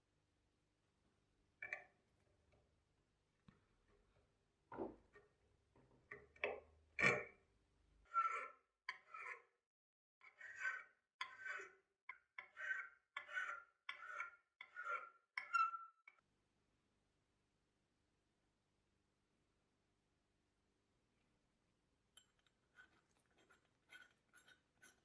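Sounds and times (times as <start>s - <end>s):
file scraping on brass: 8.1s - 9.5s, 10.2s - 11.8s, 12.4s - 15.9s, 22.7s - 25.0s.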